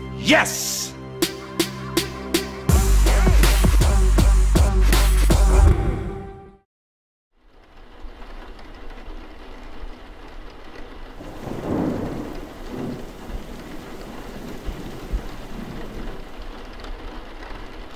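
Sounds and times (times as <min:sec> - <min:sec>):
steady rain: 0:07.4 - 0:17.9
thunder rumbling: 0:08.8 - 0:17.9.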